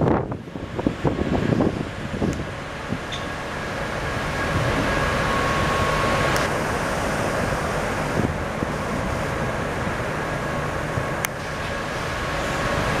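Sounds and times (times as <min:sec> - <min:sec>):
wind buffeting microphone: 0:00.0 - 0:06.6, 0:07.4 - 0:11.4
rough sea wash: 0:00.0 - 0:13.0
faint machinery whine: 0:02.7 - 0:13.0.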